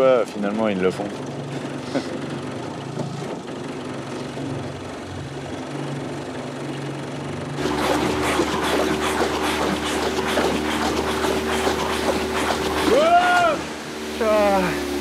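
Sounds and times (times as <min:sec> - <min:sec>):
outboard motor running: 0:00.0 - 0:15.0
water splashing and rushing: 0:07.6 - 0:15.0.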